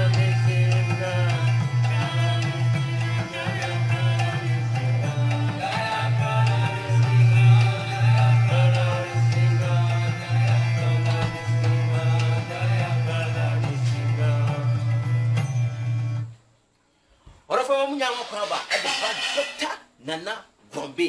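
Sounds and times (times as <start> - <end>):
music with strong bass line: 0.0 - 16.3.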